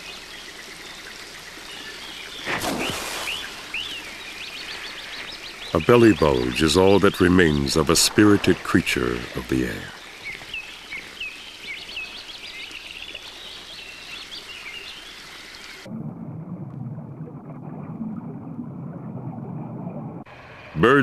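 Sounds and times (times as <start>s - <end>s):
water hiss: 0.0s - 15.9s
muffled low underwater sound: 15.9s - 21.0s.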